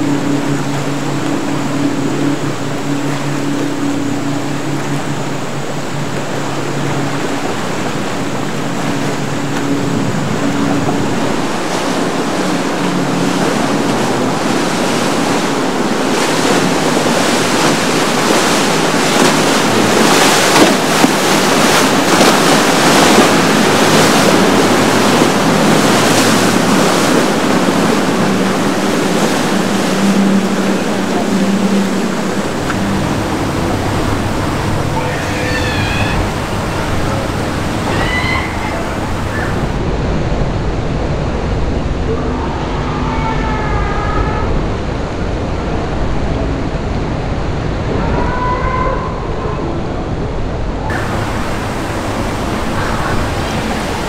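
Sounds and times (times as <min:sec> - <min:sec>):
motorboat engine hum: 0:00.0 - 0:48.0, 0:49.1 - 0:54.0
surf and spray washing: 0:00.0 - 0:54.0.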